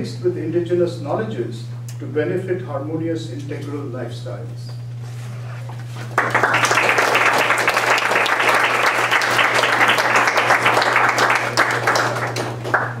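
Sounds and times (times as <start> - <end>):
audience applauding: 6.0 - 13.0.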